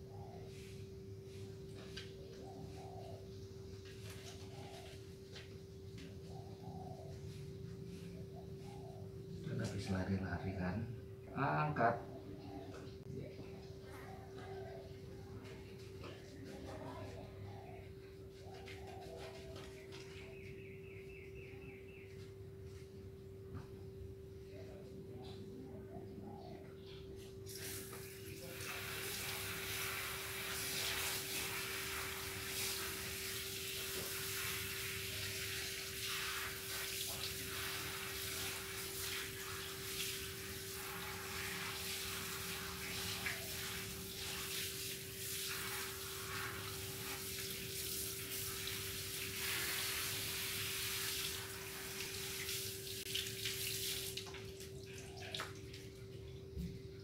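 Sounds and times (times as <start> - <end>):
water spraying from hose nozzle: 27.5 - 54.4
water splashing on tile floor: 27.5 - 56.1.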